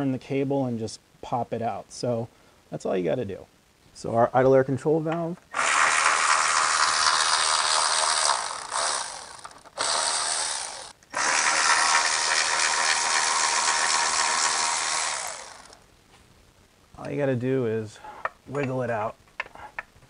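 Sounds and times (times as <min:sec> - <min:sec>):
cordless electric ratchet running: 0:05.6 - 0:15.8.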